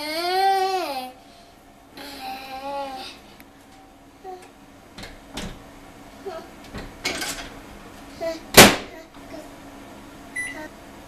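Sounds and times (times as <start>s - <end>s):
knocks and taps on microwave: 5.0s - 5.6s
electronic keypad beep: 10.4s - 10.6s.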